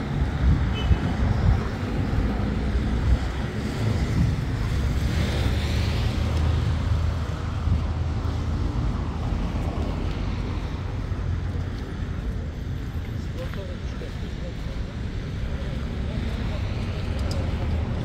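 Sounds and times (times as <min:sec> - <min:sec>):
wind buffeting microphone: 0:00.0 - 0:08.3
faint street traffic: 0:00.0 - 0:18.0.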